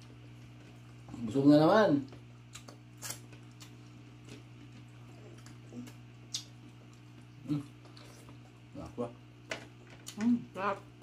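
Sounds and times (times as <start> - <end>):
steady low hum: 0.0 - 11.0
wet mouth clicks and smacks: 2.5 - 3.8, 6.3 - 7.0.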